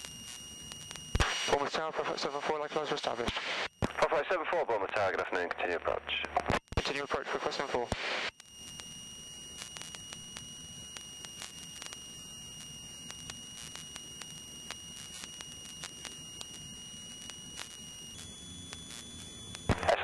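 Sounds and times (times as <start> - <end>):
high-pitched electronic whine: 0.0 - 20.0.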